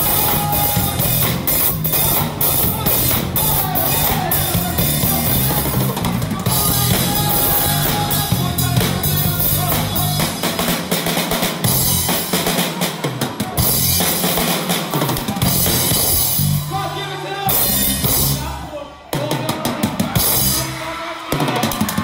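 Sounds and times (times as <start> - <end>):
low bass line: 0.0 - 10.4
drum kit: 0.0 - 22.0
live band playing r and b: 0.0 - 22.0.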